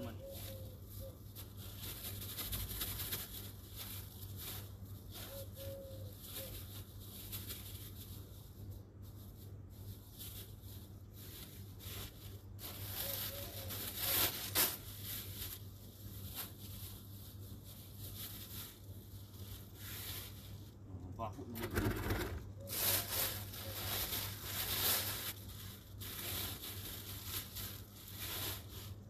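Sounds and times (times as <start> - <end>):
plastic bag rustling: 0.0 - 20.8, 21.4 - 29.0.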